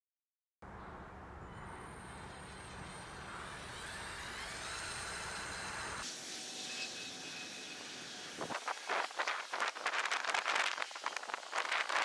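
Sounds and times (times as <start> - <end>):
toy car electric motor whining: 1.5 - 12.0
wind rumble on microphone: 8.4 - 12.0.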